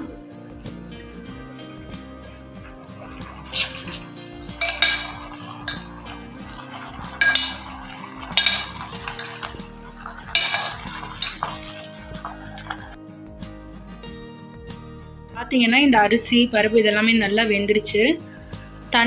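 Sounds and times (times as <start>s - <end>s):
ladle scraping and clinking in metal pot: 0.0s - 13.0s, 17.9s - 19.0s.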